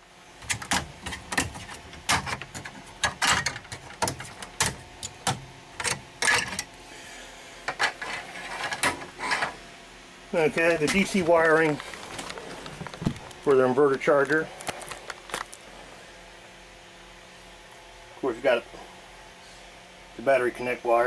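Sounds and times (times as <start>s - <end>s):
hands handling plastic and metal parts: 10.6s - 15.6s.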